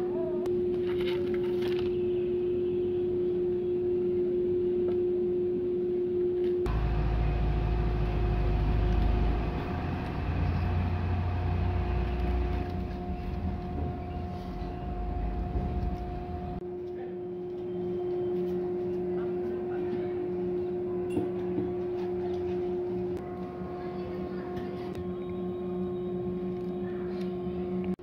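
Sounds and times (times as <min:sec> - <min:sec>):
mechanical hum with held tone: 0:00.0 - 0:28.0
deep rumble with higher tone: 0:01.9 - 0:16.6.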